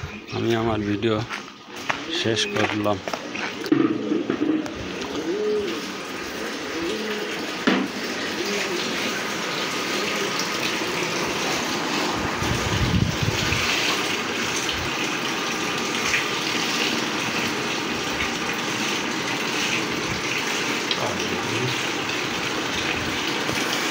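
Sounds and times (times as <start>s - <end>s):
liquid gushing: 0.4s - 23.9s.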